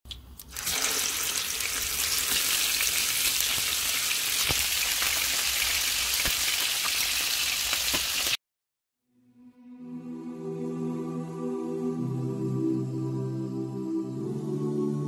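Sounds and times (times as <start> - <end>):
fish frying in hot oil: 0.5 - 8.4.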